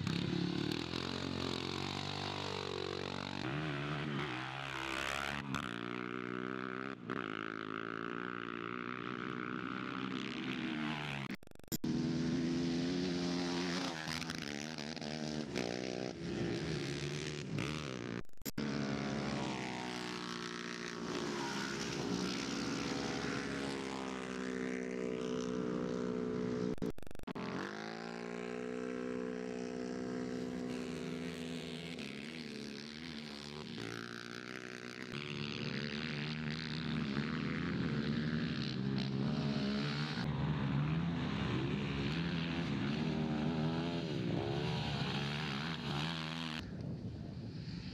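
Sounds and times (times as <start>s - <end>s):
quad engines revving: 0.0s - 46.8s.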